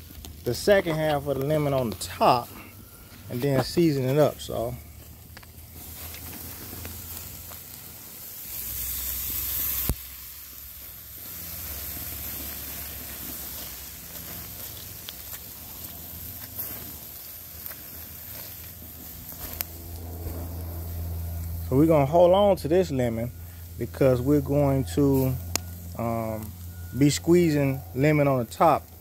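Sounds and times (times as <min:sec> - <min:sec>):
meat sizzling on a grill: 0:00.0 - 0:29.0
loud hiss: 0:05.6 - 0:26.4.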